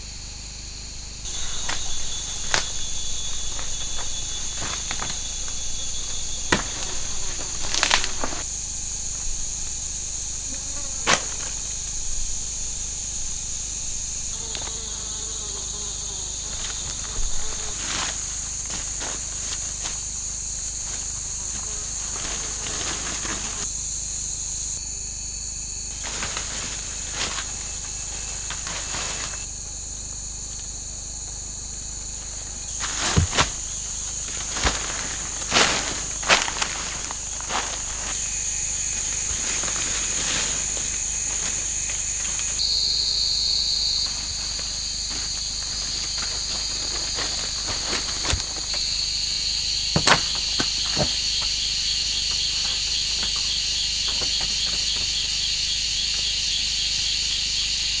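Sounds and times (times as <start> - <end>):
forest insects droning: 0.0 - 58.0
footsteps through undergrowth: 1.2 - 15.0, 16.3 - 23.7, 26.0 - 29.5, 31.9 - 56.4
leaves rustling: 1.2 - 23.8, 25.8 - 29.6, 31.6 - 56.4
twigs snapping and crunching: 1.3 - 8.5, 11.0 - 12.6, 34.3 - 38.3, 45.1 - 48.9, 50.0 - 51.6.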